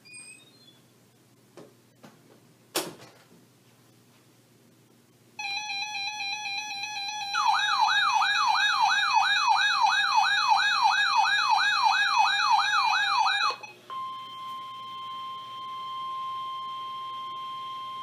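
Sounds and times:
fast warbling siren: 0:05.4 - 0:13.7
plain steady alarm tone: 0:05.4 - 0:18.0.

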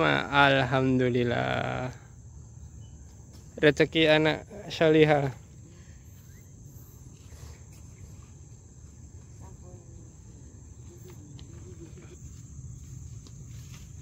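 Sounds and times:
insects shrilling: 0:00.0 - 0:11.0.

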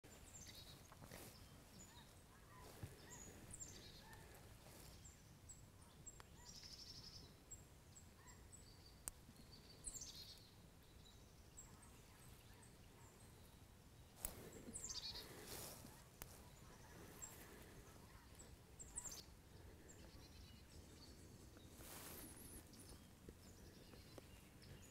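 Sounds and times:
small birds chirping: 0:00.0 - 0:24.9
rustles in dry leaves: 0:00.1 - 0:05.3, 0:14.2 - 0:19.3, 0:20.8 - 0:24.9.

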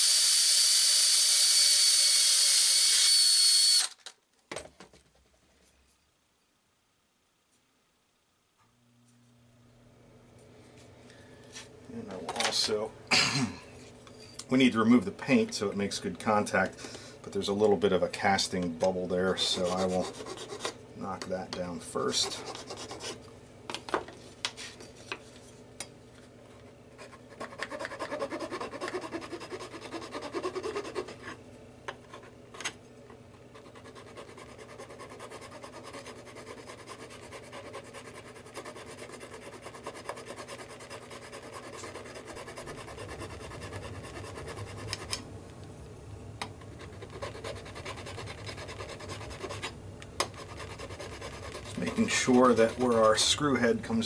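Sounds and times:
hand tool scraping metal: 0:50.3 - 0:53.4.

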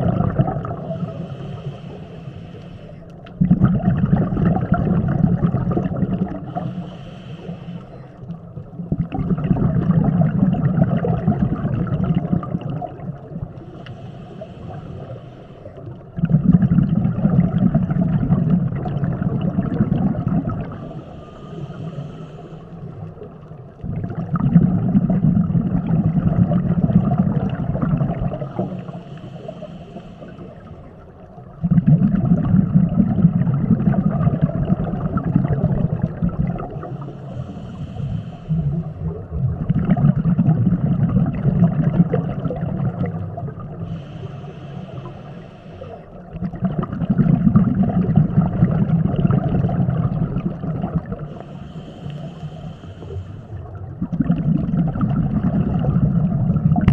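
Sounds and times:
bubbling exhaled air underwater: 0:00.0 - 0:56.9
hissing regulator inhale: 0:00.7 - 0:03.3, 0:06.2 - 0:08.4, 0:13.5 - 0:16.1, 0:20.4 - 0:23.5, 0:28.3 - 0:31.3, 0:36.7 - 0:39.2, 0:43.6 - 0:46.4, 0:51.0 - 0:53.8.

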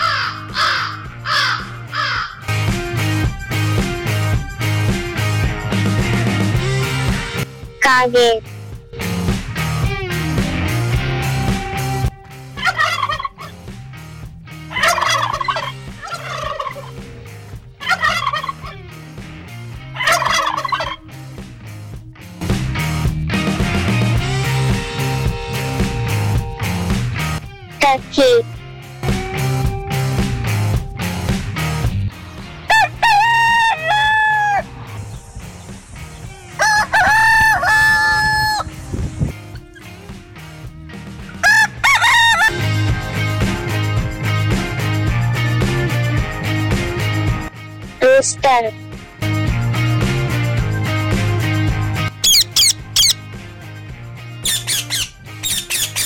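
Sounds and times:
rooster crowing: 0:00.0 - 0:02.4, 0:32.7 - 0:34.7, 0:36.5 - 0:38.7, 0:41.4 - 0:42.6
turkey gobbling: 0:00.0 - 0:02.4, 0:12.6 - 0:13.6, 0:14.7 - 0:17.0, 0:17.8 - 0:18.8, 0:20.0 - 0:21.0, 0:32.7 - 0:34.6, 0:36.6 - 0:38.7, 0:41.3 - 0:42.5, 0:52.2 - 0:53.2, 0:54.4 - 0:56.0.

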